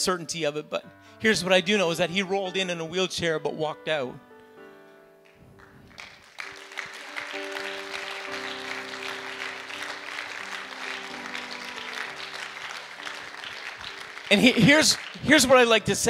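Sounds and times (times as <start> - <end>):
soft background music chords: 0.0 - 5.4
congregation applauding: 5.3 - 16.0.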